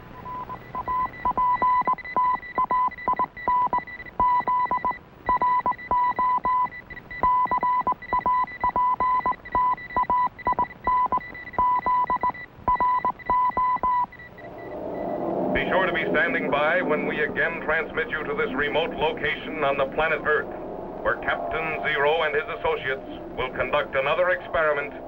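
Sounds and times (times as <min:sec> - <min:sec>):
morse code beeps: 0:00.2 - 0:15.5
steady high whine: 0:13.8 - 0:25.0.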